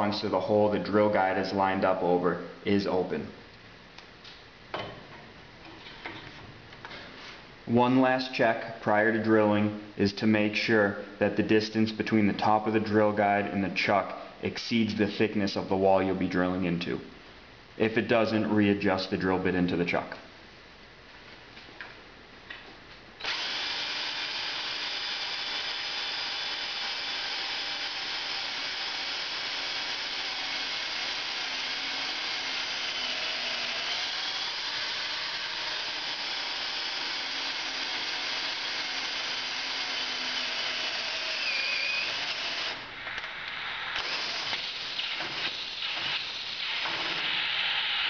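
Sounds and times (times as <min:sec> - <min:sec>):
power drill boring through metal: 0:23.2 - 0:42.8, 0:43.9 - 0:48.0.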